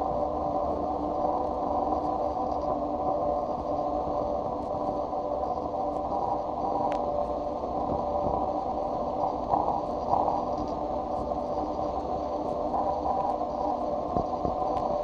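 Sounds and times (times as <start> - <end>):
dense noise drone: 0.0 - 15.0.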